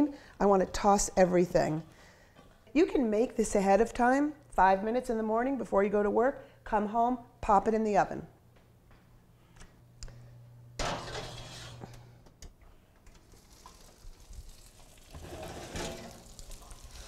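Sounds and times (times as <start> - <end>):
oven door opening: 10.8 - 11.9
metal oven rack pulled out: 10.8 - 12.0, 15.0 - 17.0.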